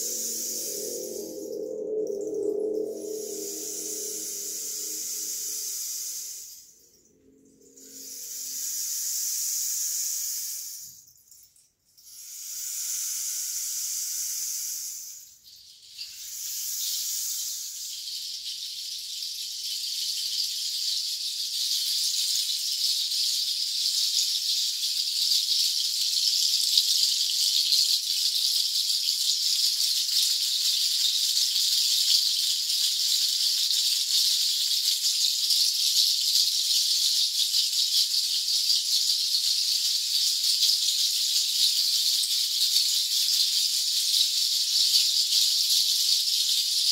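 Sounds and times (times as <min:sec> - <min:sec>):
rainstick hiss: 0:00.0 - 0:06.8, 0:07.6 - 0:11.0, 0:12.0 - 0:46.9
seed-pod shakers rattling: 0:17.8 - 0:46.9.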